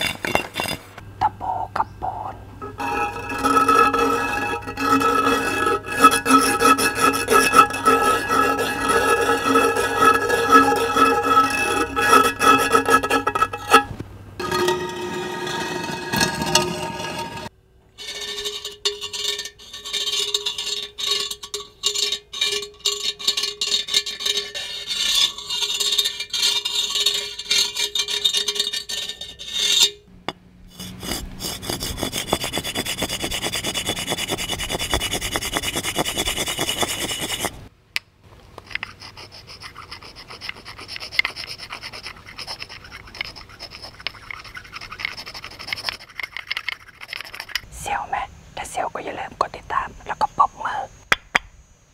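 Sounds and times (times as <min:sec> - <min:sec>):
metal point scraping ridged clay pot: 0:00.0 - 0:37.7, 0:38.6 - 0:48.2
rasping scrapes: 0:02.7 - 0:30.0, 0:30.7 - 0:37.6, 0:38.6 - 0:47.7
nails screeching on masonry block: 0:02.8 - 0:13.9, 0:15.2 - 0:30.0, 0:30.8 - 0:37.6.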